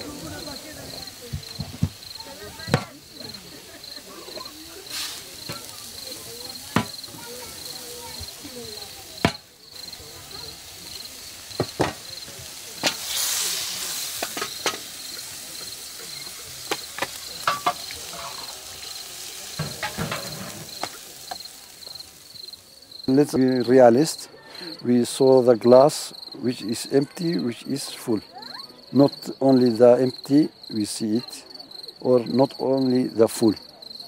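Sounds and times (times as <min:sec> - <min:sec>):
crickets chirping: 0:00.0 - 0:34.0
brief hiss: 0:04.7 - 0:06.0, 0:10.4 - 0:22.1
dishes and utensils clinking: 0:16.7 - 0:18.6, 0:19.5 - 0:21.5.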